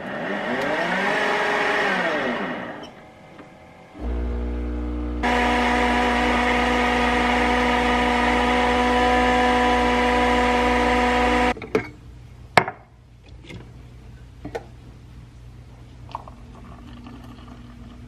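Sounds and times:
coffee machine whirring hum: 0.0 - 11.6.

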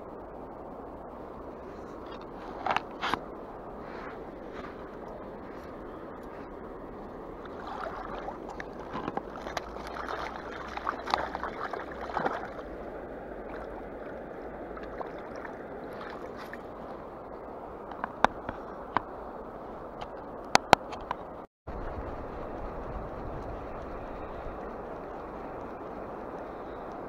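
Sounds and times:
flowing river water: 0.0 - 21.4
water sloshing and splashing: 2.0 - 19.2.

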